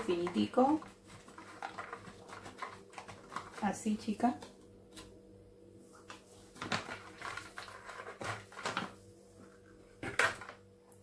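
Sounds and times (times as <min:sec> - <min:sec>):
plastic pouch rustling: 0:00.0 - 0:04.1, 0:06.0 - 0:10.6.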